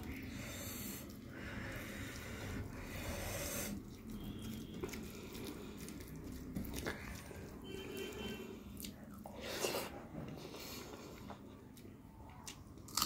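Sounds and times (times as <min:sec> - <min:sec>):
fingers squelching food: 0:01.0 - 0:09.2.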